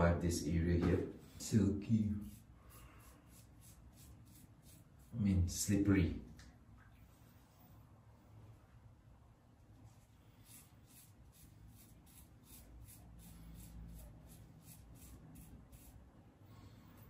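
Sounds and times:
razor scratching stubble: 2.2 - 5.2, 10.4 - 16.0.

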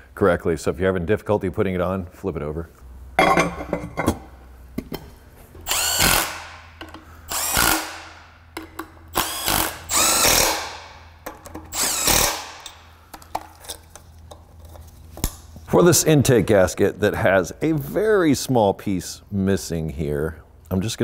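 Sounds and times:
power driver motor whirring: 5.6 - 6.6, 7.3 - 8.2, 9.1 - 11.0, 11.7 - 12.7.

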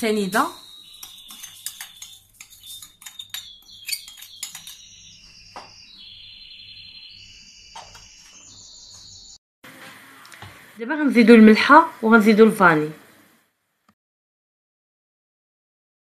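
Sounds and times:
spoon clinking on bowl: 0.9 - 4.8
sugar pattering into steel bowl: 1.0 - 4.9.

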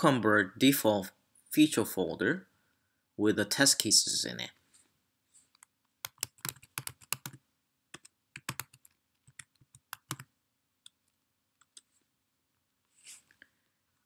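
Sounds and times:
typing on keyboard: 5.6 - 11.0, 11.6 - 11.9.

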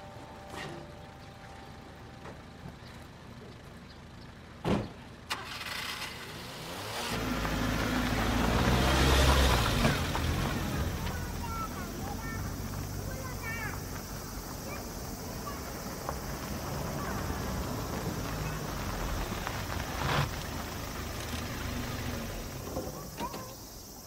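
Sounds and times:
vehicle engine starting: 0.0 - 24.0
truck door slamming: 4.6 - 5.0.

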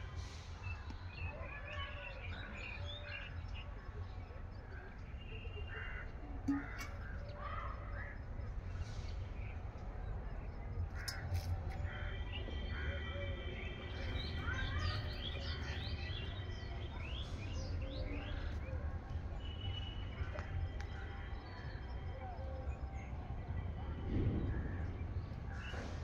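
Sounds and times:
steady low rumble: 7.7 - 26.0.

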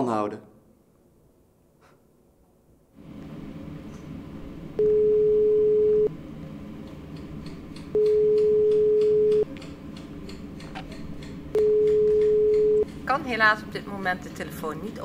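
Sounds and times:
telephone ringback tone: 4.8 - 6.1, 8.0 - 9.4, 11.6 - 12.8.

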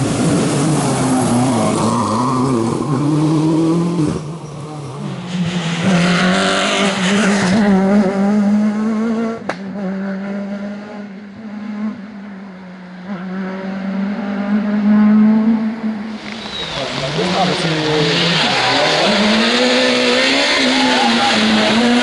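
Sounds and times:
rally car engines revving: 0.0 - 22.0.

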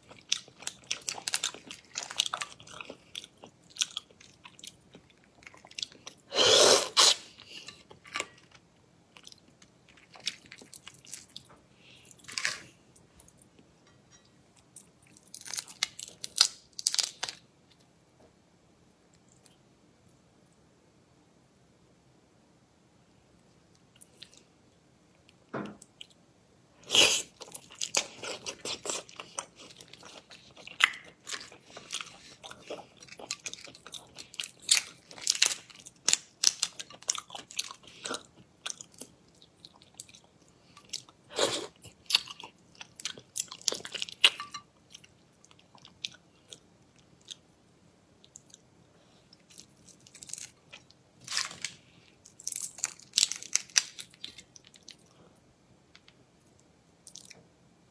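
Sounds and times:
chewing and crunching: 0.0 - 6.3, 7.0 - 13.6, 26.8 - 47.4, 56.0 - 57.4
shells cracking and peeling: 51.2 - 54.8.

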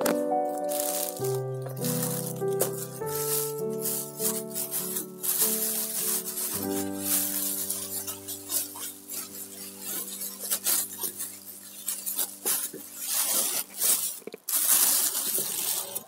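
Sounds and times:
background music chord: 0.0 - 10.4
plastic bag crinkling: 0.0 - 16.0.

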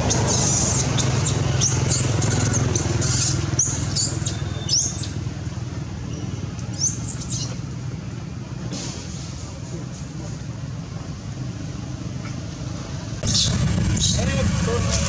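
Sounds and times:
macaque high-pitched distress squeals: 0.0 - 5.2, 6.7 - 7.6
steady low rumble: 13.2 - 15.0.

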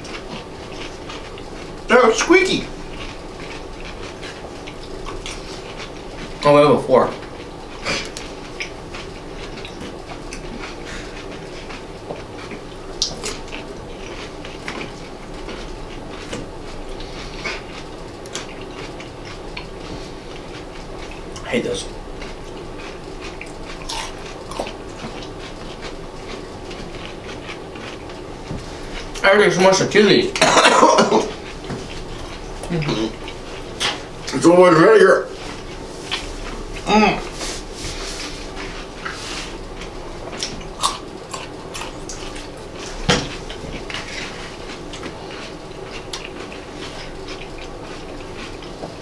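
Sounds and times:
chewing food: 0.0 - 49.0.

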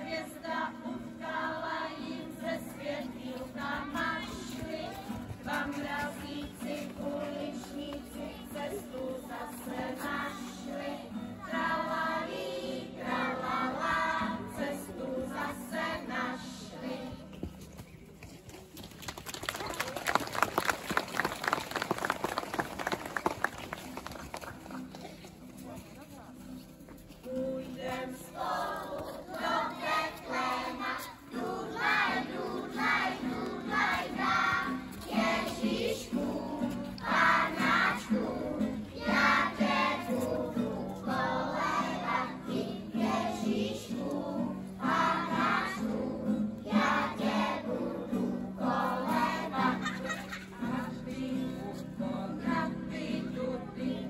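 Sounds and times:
children singing in unison: 0.0 - 17.1, 27.8 - 50.0.

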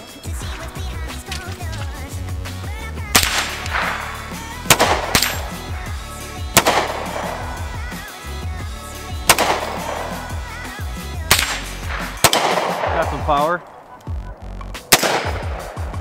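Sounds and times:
background music with bass line: 0.0 - 16.0
handgun shots: 3.1 - 5.6, 6.5 - 7.5, 9.2 - 10.2, 11.3 - 13.2, 14.9 - 15.9.

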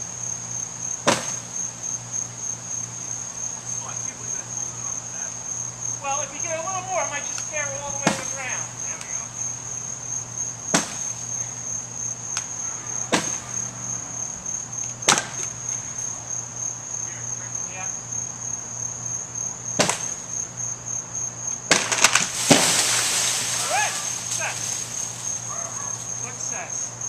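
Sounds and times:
high insect trill: 0.0 - 27.0
sharp strikes on wood: 1.0 - 1.4, 10.7 - 11.1, 13.1 - 13.4, 15.0 - 15.5, 19.8 - 20.2
tree limb cracking and breaking: 21.7 - 26.0.

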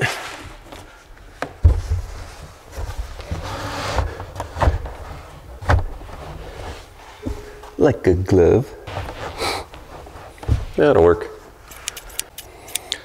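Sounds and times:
box scraping over carpet: 8.9 - 10.8.

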